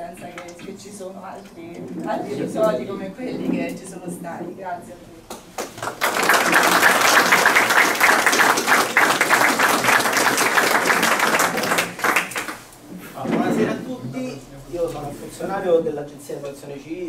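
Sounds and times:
audience applauding: 5.6 - 12.7.

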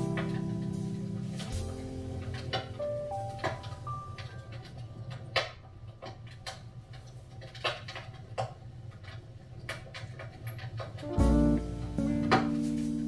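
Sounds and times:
wood fire crackling: 0.0 - 13.0
low steady rumble: 11.0 - 13.0.

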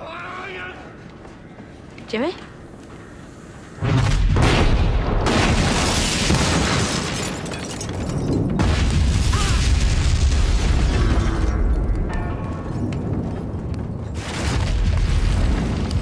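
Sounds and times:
explosion blast: 3.8 - 7.1, 8.4 - 11.8
fire and debris rumbling: 3.8 - 16.0.

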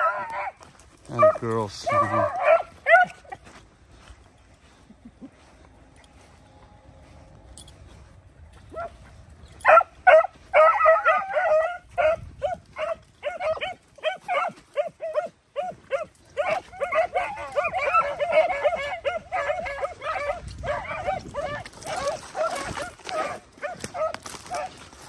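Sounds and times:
hounds baying: 0.0 - 25.0.

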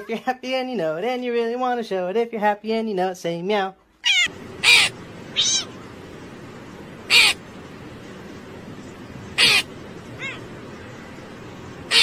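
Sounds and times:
cat meow: 4.0 - 5.8, 9.4 - 10.5
crow cawing: 4.1 - 5.8, 7.1 - 7.4, 9.3 - 11.0.

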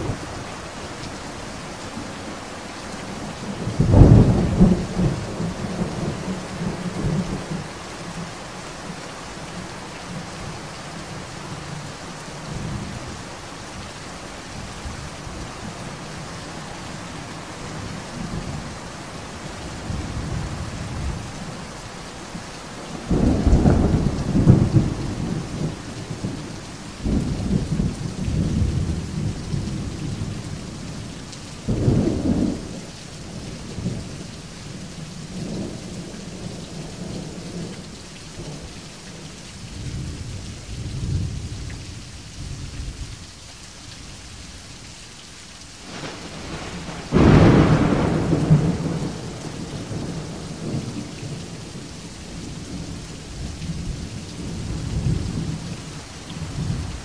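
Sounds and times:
steady rain: 0.0 - 57.0
thunder rumbling: 3.5 - 7.6, 23.0 - 26.4, 45.8 - 53.0
loud thunderclap: 45.9 - 50.8.

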